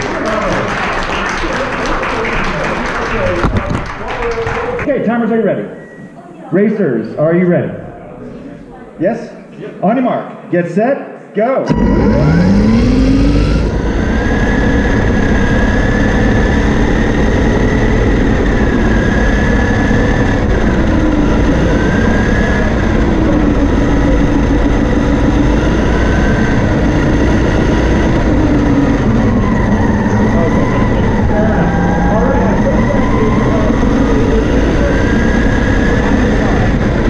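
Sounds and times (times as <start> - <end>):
electric motor whine: 11.7 - 37.0.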